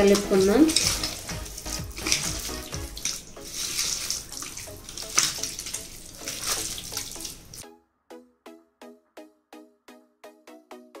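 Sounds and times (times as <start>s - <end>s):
hand kneading wet meat: 0.0s - 7.6s.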